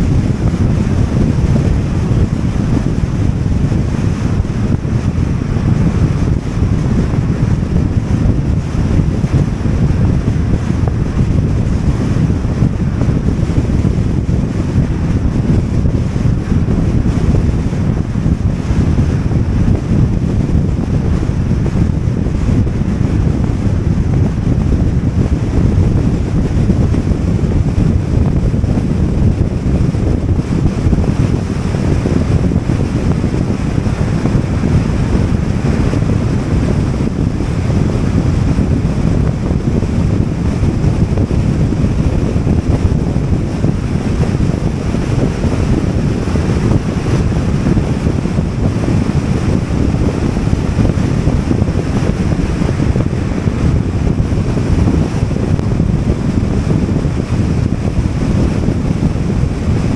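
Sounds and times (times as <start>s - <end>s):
car road noise: 0.0s - 36.0s
wind buffeting microphone: 0.0s - 59.9s.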